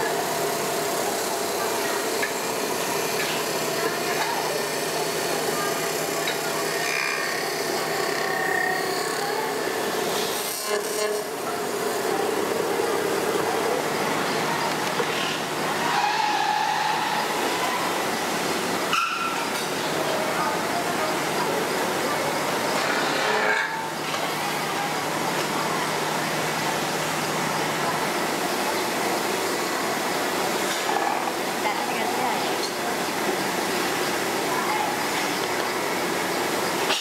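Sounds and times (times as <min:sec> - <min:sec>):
lathe machine hum: 0:00.0 - 0:36.8
cutting tool scraping metal: 0:10.1 - 0:11.5, 0:15.8 - 0:17.4, 0:22.8 - 0:23.9.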